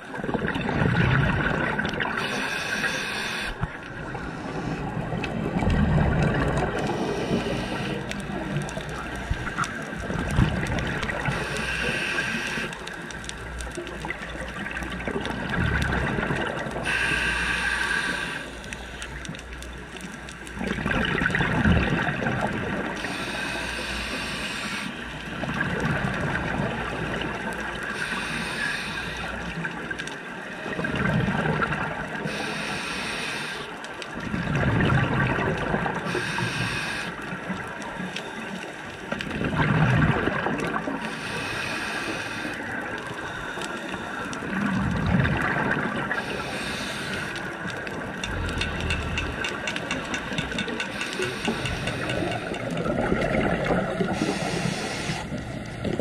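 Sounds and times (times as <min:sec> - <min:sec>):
gurgling exhaust bubbles: 0:00.2 - 0:02.2, 0:04.9 - 0:07.6, 0:08.2 - 0:11.5, 0:14.0 - 0:16.9, 0:20.5 - 0:23.0, 0:34.2 - 0:36.1, 0:39.2 - 0:41.0, 0:44.4 - 0:46.7, 0:48.0 - 0:50.7, 0:51.3 - 0:54.5
regulator inhale hiss: 0:02.2 - 0:05.0, 0:06.9 - 0:08.5, 0:11.2 - 0:12.9, 0:16.8 - 0:19.0, 0:23.0 - 0:25.1, 0:27.9 - 0:29.5, 0:32.2 - 0:33.8, 0:36.1 - 0:37.3, 0:41.0 - 0:44.4, 0:46.1 - 0:47.7, 0:50.0 - 0:52.6, 0:54.1 - 0:55.6.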